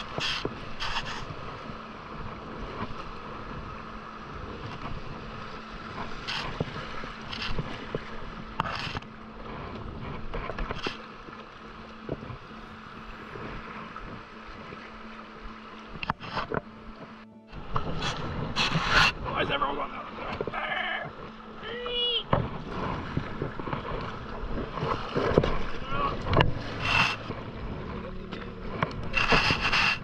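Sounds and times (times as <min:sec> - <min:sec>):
river rapids rushing: 0:00.0 - 0:09.7, 0:10.3 - 0:30.0
kayak paddle splashing: 0:00.0 - 0:30.0.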